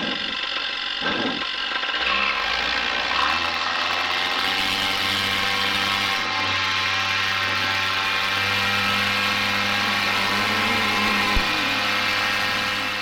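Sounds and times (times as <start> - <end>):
paramotor engine running: 0.0 - 13.0.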